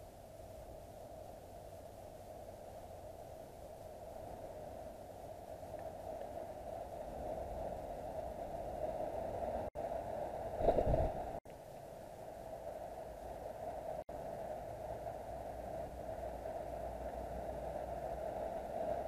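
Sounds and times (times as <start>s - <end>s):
recording hum and hiss: 0.0s - 19.0s
low rumble: 10.3s - 11.4s.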